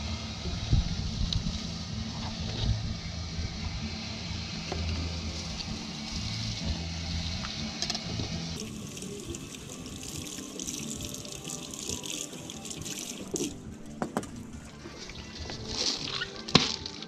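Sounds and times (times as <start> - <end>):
faucet water running into sink: 8.6 - 13.6.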